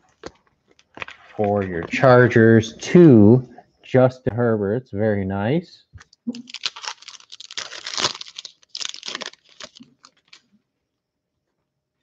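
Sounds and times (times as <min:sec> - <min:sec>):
foil wrapper crinkling and tearing: 0:06.3 - 0:10.5.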